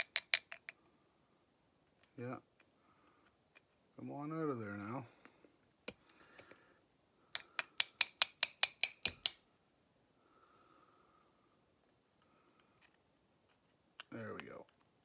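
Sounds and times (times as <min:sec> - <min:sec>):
screwdriver tapping on metal: 0:00.0 - 0:00.8, 0:07.4 - 0:09.4.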